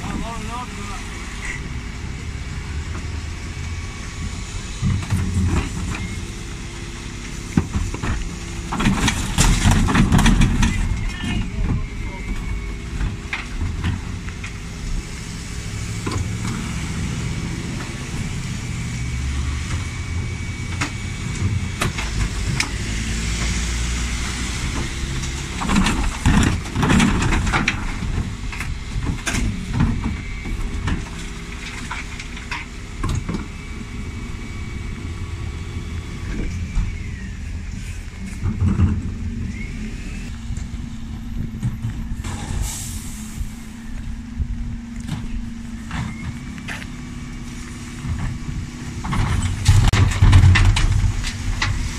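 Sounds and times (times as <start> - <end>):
diesel truck engine running: 0.0 - 51.9
bins clattering and banging: 7.5 - 14.2, 24.7 - 33.6, 47.8 - 51.9.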